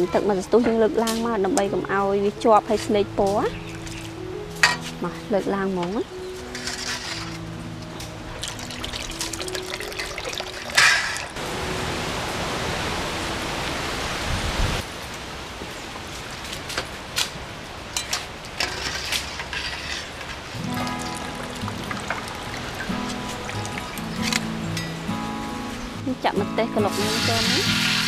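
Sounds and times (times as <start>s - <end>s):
running water: 6.5s - 14.9s, 17.8s - 25.9s, 26.8s - 28.0s
water sloshing and dripping: 6.6s - 11.4s, 17.8s - 25.0s.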